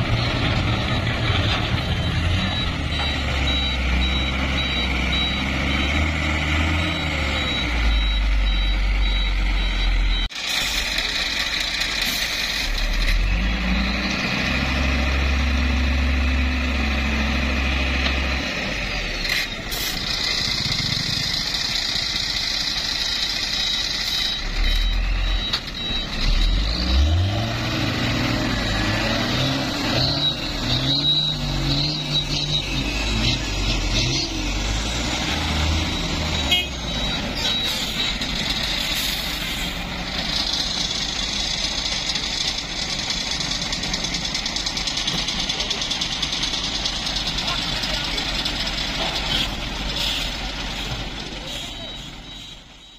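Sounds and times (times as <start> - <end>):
diesel truck engines revving: 0.0 - 52.9.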